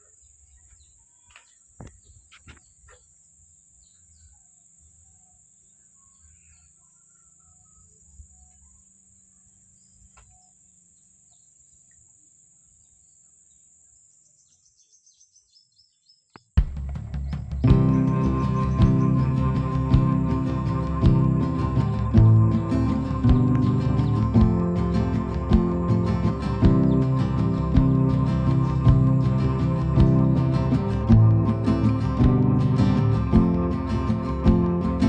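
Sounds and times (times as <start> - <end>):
insect drone: 0.0 - 15.2, 17.0 - 35.0
faint bird chirps: 0.0 - 16.4
background music: 16.7 - 35.0.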